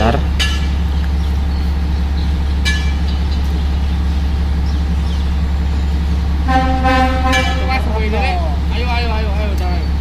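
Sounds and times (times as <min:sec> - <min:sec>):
diesel truck engine idling: 0:00.0 - 0:10.0
high-pitched horn toot: 0:06.5 - 0:07.9.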